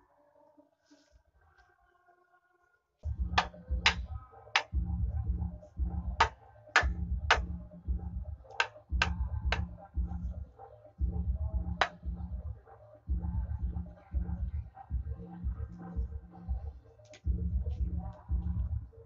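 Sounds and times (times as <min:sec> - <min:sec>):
hatchet knocking on wooden frame: 0:03.4 - 0:04.0, 0:06.2 - 0:07.5, 0:08.6 - 0:09.7.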